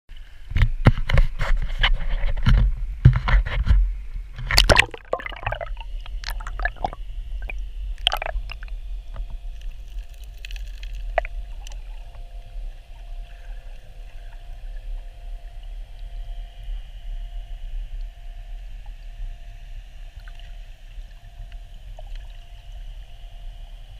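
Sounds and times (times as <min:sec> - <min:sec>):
muffled underwater rumble: 0:00.1 - 0:23.9
water splashing: 0:04.4 - 0:08.8
faint steady tones: 0:05.0 - 0:23.9.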